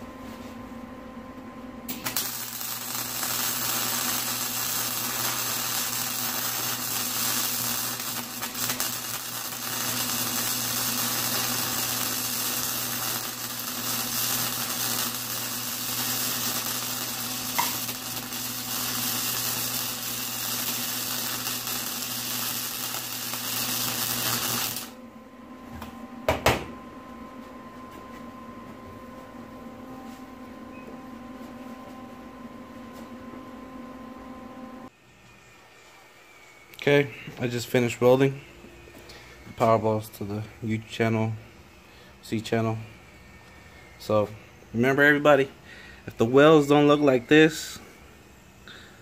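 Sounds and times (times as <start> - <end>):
electrical hum: 0.0 - 49.0
welding arc crackling: 1.9 - 25.0.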